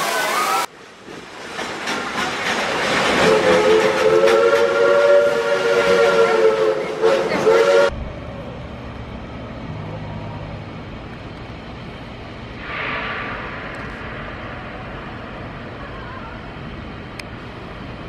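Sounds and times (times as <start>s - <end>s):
steam hissing: 0.0s - 0.7s, 12.5s - 18.0s
steam train chime whistle: 3.2s - 7.9s.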